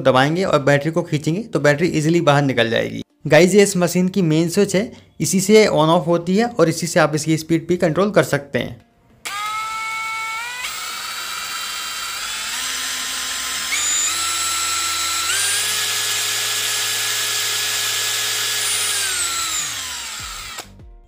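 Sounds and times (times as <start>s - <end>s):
cordless drill motor whine: 9.2s - 20.8s.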